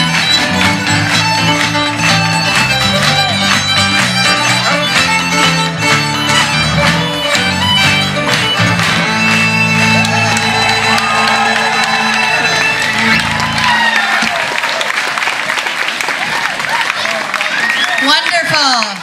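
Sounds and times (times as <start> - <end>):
fiddle lead: 0.0 - 14.1
folk band playing dance tune: 0.0 - 14.5.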